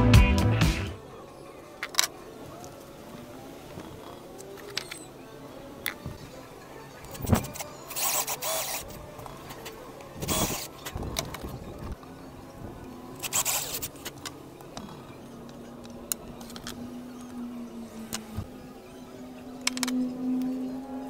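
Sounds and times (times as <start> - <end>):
cordless drill driving screws: 7.1 - 11.0, 13.2 - 14.1.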